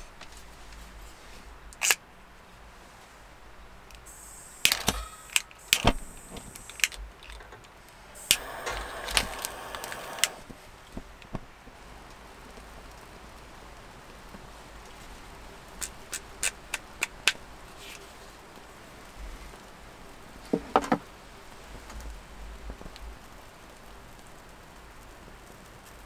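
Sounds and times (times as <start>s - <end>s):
gas lighter clicking: 3.9s - 7.4s, 8.2s - 10.4s.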